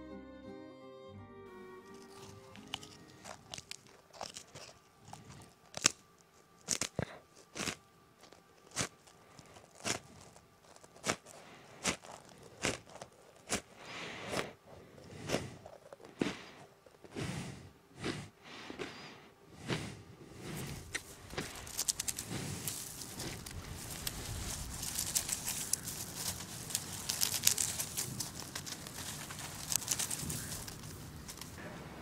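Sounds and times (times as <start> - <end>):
crunching and sharp clicks: 1.9 - 17.2, 20.5 - 31.6
soft scraping: 19.6 - 31.6.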